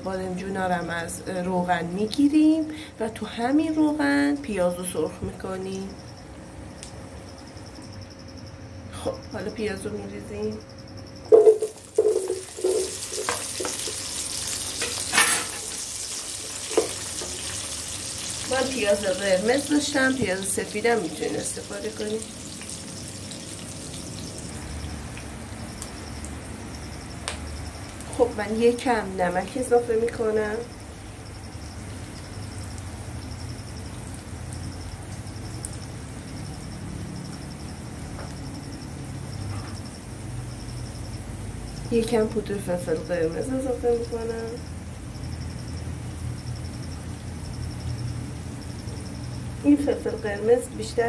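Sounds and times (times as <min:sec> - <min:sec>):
wooden spatula stirring: 0:11.3 - 0:14.0
onions sizzling in oil: 0:11.3 - 0:38.5.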